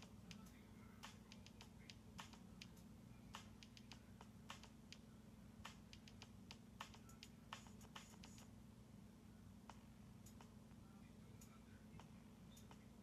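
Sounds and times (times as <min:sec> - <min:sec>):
claws tapping on phone screen: 0:00.0 - 0:08.5, 0:12.0 - 0:13.0.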